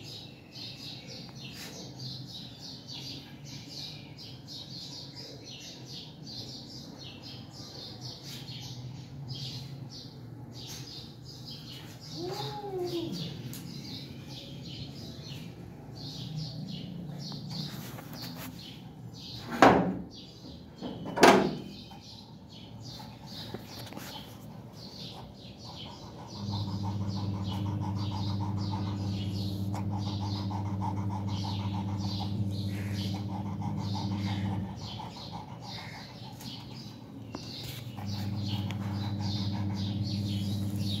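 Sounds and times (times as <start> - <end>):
small birds chirping: 0.0 - 41.0
metal door clanking: 20.8 - 21.7
low motor hum: 25.9 - 35.2, 37.6 - 41.0.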